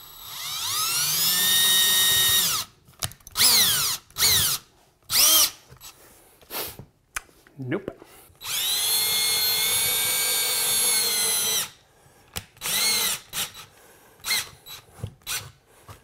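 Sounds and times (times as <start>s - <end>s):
cordless drill running: 0.0s - 2.7s, 3.4s - 5.6s, 8.4s - 11.8s, 12.6s - 15.6s.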